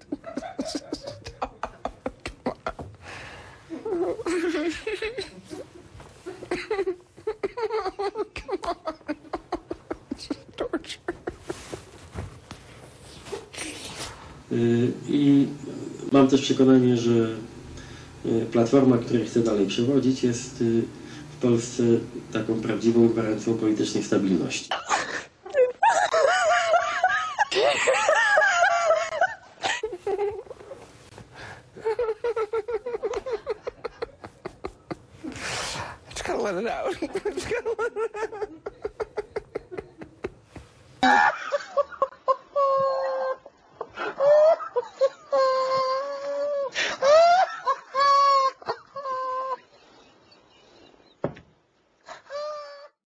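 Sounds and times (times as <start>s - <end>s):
faint room noise: 0.0s - 53.0s
woman laughing high-pitched: 24.7s - 30.6s, 41.0s - 50.2s.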